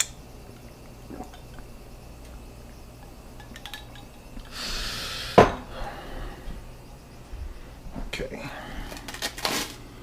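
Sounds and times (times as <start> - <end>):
dishes clinking: 3.0 - 4.5, 5.4 - 5.8.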